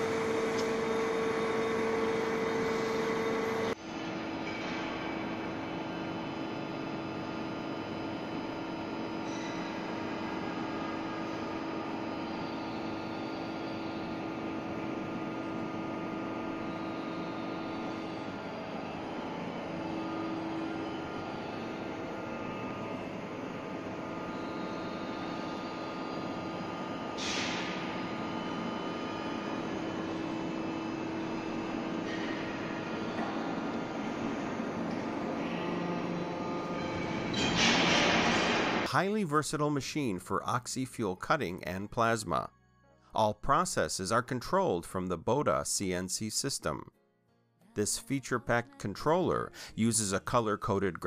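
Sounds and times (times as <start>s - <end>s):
cutting machine hum: 0.0s - 4.4s, 9.9s - 37.4s
faint wavering high whines: 9.3s - 37.5s.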